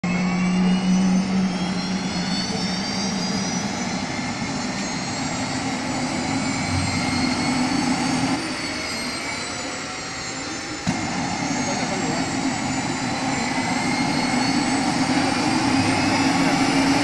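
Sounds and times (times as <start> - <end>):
helicopter turbine whine rising: 0.0 - 17.0.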